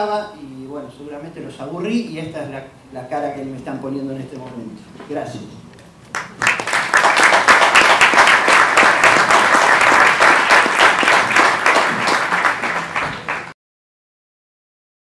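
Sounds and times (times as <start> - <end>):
audience applauding: 6.1 - 13.6.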